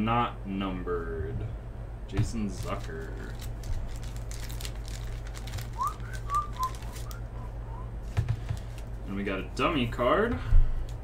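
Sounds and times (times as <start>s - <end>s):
low electrical hum: 0.0s - 11.0s
trading cards and wrapper rustling: 2.4s - 9.1s
person whistling short notes: 5.8s - 8.0s.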